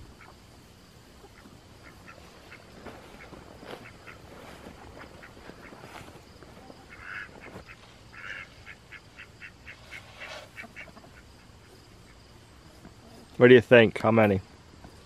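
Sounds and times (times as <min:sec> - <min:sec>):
hens clucking: 0:00.0 - 0:13.3
short repeated hen calls: 0:01.2 - 0:12.2.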